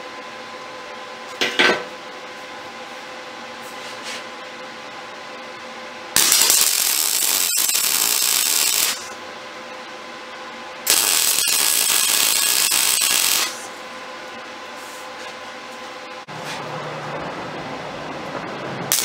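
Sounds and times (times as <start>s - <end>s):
welding arc buzzing: 6.1s - 9.2s, 10.8s - 13.8s.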